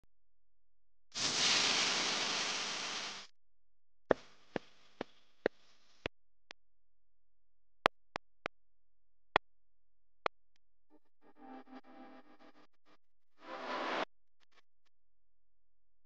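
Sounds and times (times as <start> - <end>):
loud hiss: 1.2 - 3.3.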